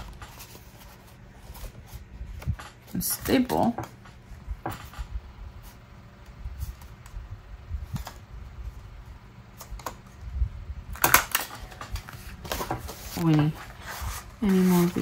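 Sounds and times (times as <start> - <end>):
paper rustling and bumps: 11.4 - 15.0.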